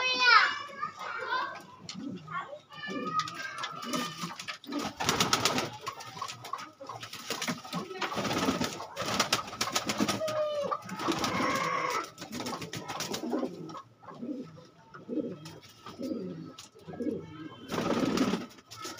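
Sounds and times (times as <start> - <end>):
pigeons cooing: 1.4 - 18.9
wing flaps and clatter: 3.1 - 13.4.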